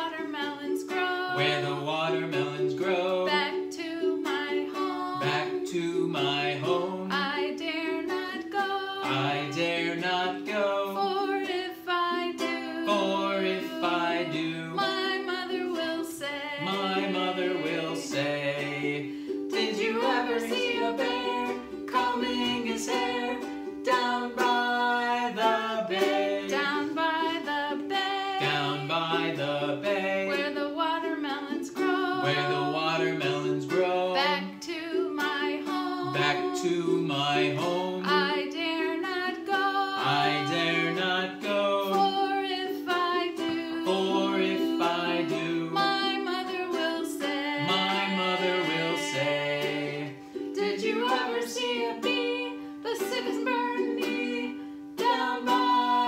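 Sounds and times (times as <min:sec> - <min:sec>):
strummed ukulele: 0:00.0 - 0:56.0
voices singing: 0:00.0 - 0:56.0.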